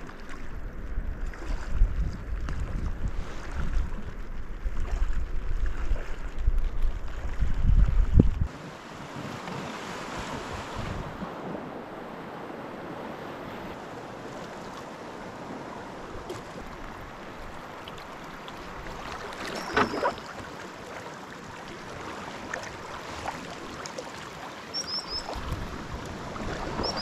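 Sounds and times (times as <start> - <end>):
river water rushing: 8.5 - 27.0.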